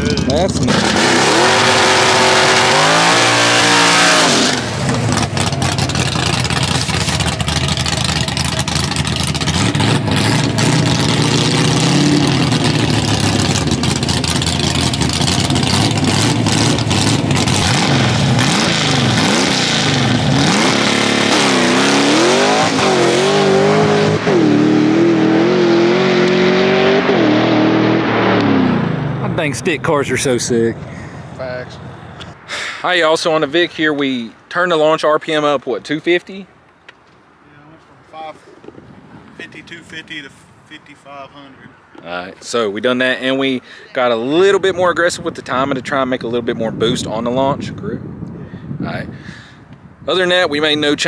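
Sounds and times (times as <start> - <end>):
drag car engine revving: 0.0 - 29.4.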